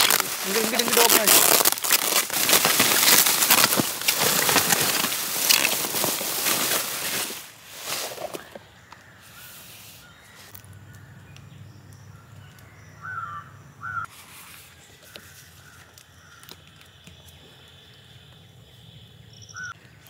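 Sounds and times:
paper in plastic sleeve rustling: 0:00.0 - 0:08.5
bird harsh calls: 0:08.2 - 0:18.2.

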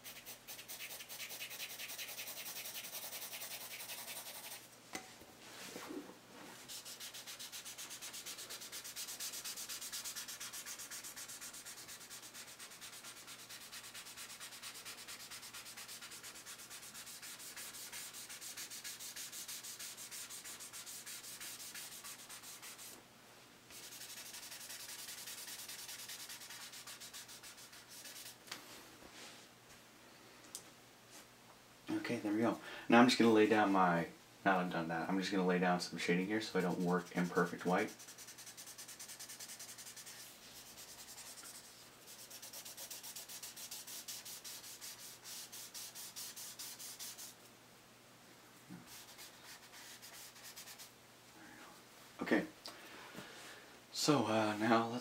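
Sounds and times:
rubbing on paper: 0:00.0 - 0:04.7, 0:06.6 - 0:23.0, 0:23.7 - 0:28.4, 0:36.6 - 0:47.4, 0:48.8 - 0:50.9.

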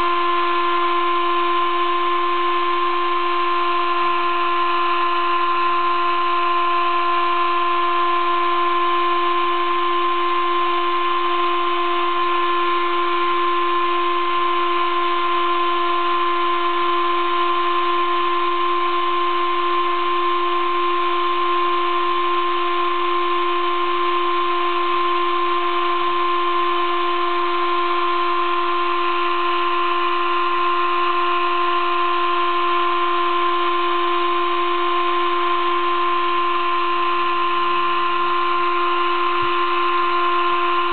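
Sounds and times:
spindle whine: 0:24.8 - 0:40.9.

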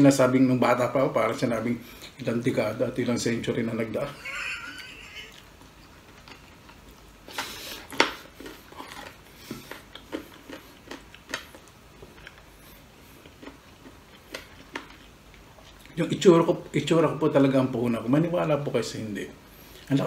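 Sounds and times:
chewing: 0:05.3 - 0:16.0.

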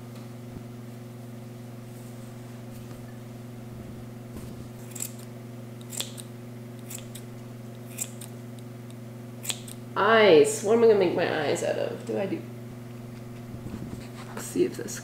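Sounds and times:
steady low hum: 0:00.0 - 0:15.0
scissors snipping yarn: 0:04.8 - 0:05.2, 0:05.8 - 0:07.2, 0:07.9 - 0:08.4, 0:09.4 - 0:09.8.

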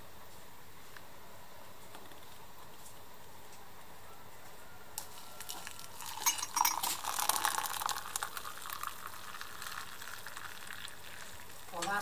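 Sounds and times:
hot water pouring into cup: 0:05.0 - 0:12.0.

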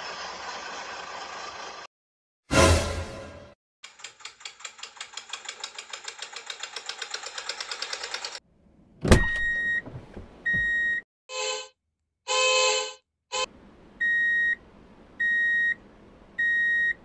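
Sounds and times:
short horn honk: 0:02.5 - 0:03.5
loud crash: 0:02.5 - 0:03.6.

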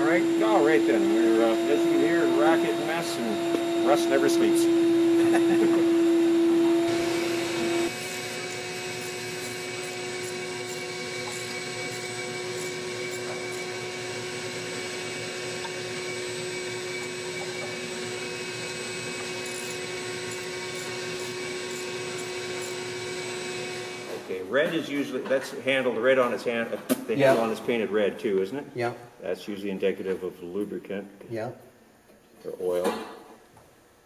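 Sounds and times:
shop vacuum running: 0:00.0 - 0:24.7.

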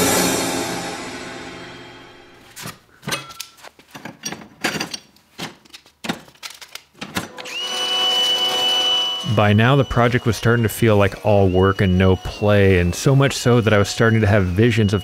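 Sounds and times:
tools knocking and clinking: 0:02.6 - 0:07.4.

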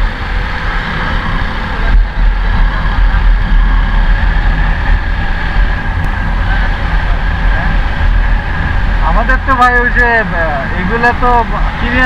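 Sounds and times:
motorcycle running: 0:00.0 - 0:12.0
wind rumbling on microphone: 0:00.0 - 0:12.0.

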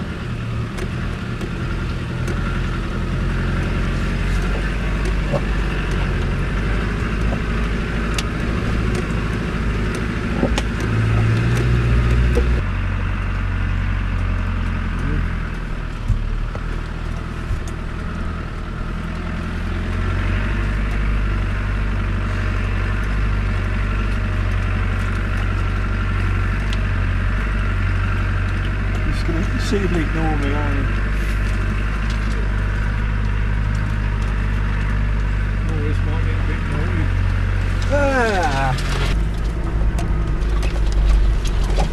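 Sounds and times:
vehicle knocks and rattles: 0:00.0 - 0:12.7, 0:14.2 - 0:41.9
diesel engine running: 0:00.0 - 0:41.9.

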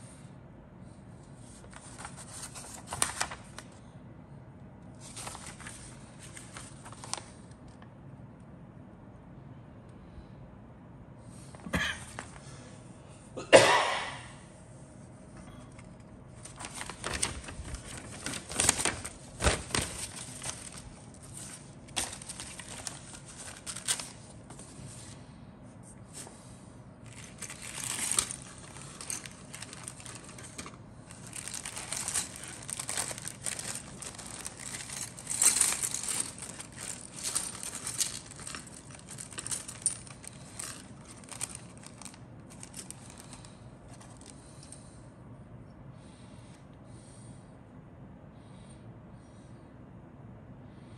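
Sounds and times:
plastic bag crinkling: 0:01.5 - 0:03.7, 0:05.0 - 0:07.5, 0:16.3 - 0:25.2, 0:27.0 - 0:44.8.

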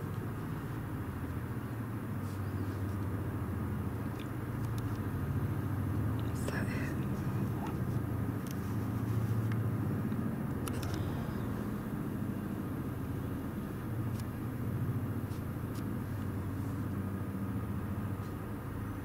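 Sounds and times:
helicopter rotor rumble: 0:00.0 - 0:18.8.

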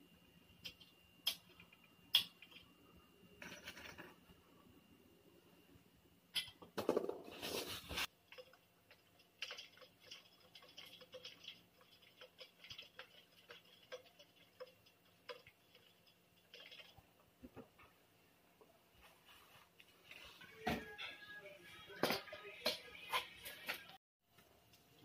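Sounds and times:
cardboard rustling and scraping: 0:07.2 - 0:08.1.

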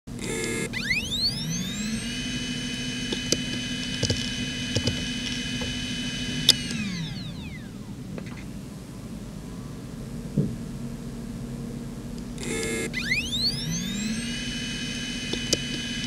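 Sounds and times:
hard drive whine: 0:00.1 - 0:16.0
hard drive head clicks: 0:03.1 - 0:06.9.

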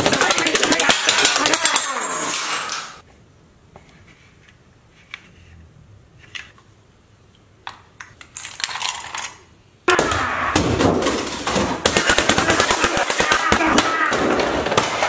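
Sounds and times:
loud rapid clatter of impacts: 0:00.0 - 0:02.7, 0:09.9 - 0:15.0.

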